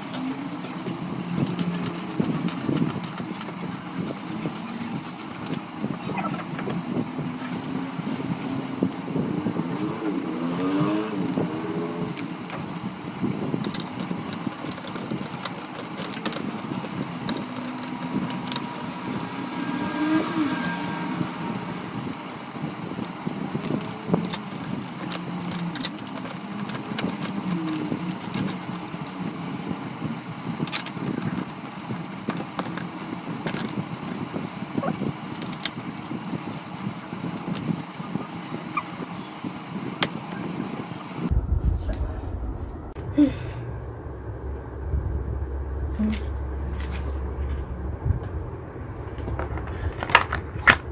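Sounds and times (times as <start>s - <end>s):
steady low hum: 0.0s - 50.9s
metallic clicks and rattles: 1.4s - 5.6s, 13.6s - 18.8s, 23.6s - 29.4s.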